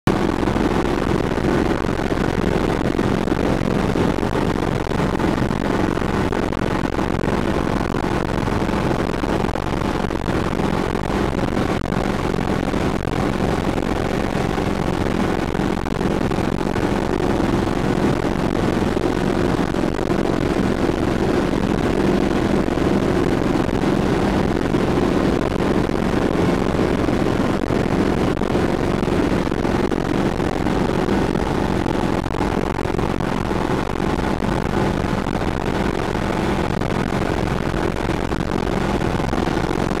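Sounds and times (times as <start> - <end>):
helicopter engine and rotor drone: 10.6 - 31.9.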